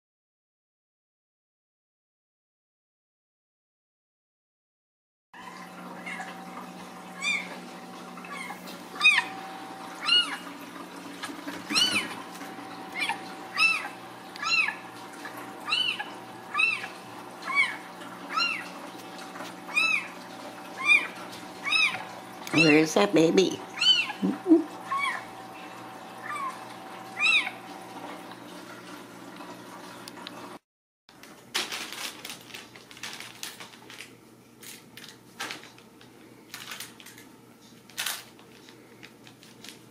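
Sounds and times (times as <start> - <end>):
kittens mewing: 7.1 - 7.6, 8.3 - 10.5, 11.6 - 12.3, 12.9 - 15.0, 15.6 - 18.8, 19.6 - 20.2, 20.8 - 22.7, 23.7 - 25.4, 26.2 - 27.7
cat meowing: 7.2 - 7.6, 8.3 - 9.4, 10.0 - 10.4, 11.7 - 12.2, 13.0 - 14.8, 15.6 - 18.7, 19.7 - 20.1, 20.8 - 22.0, 23.8 - 25.3, 26.2 - 26.6, 27.2 - 27.6.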